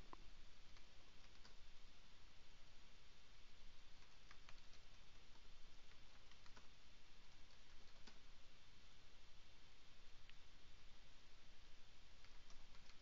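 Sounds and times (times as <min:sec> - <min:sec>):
steady low hiss: 0:00.0 - 0:13.0
keyboard typing clicks: 0:00.7 - 0:01.6, 0:04.0 - 0:06.7, 0:07.3 - 0:08.2, 0:12.2 - 0:13.0.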